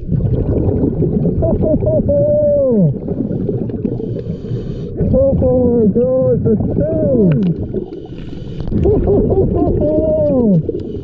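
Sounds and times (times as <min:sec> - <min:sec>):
churning underwater noise: 0:00.0 - 0:11.0
muffled diver's voice: 0:01.9 - 0:03.0, 0:05.0 - 0:07.6, 0:09.8 - 0:10.7.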